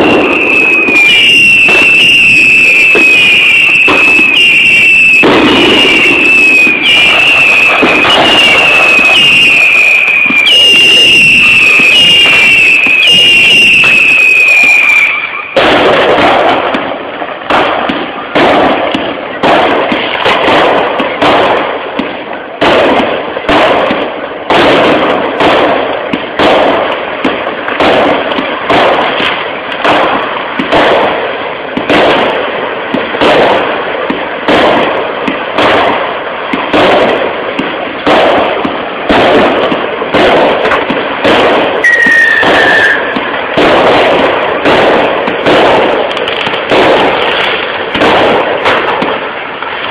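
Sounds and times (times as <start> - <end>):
falling firework whistle: 0.0 - 16.9, 38.1 - 49.2
fireworks bangs: 0.0 - 49.9.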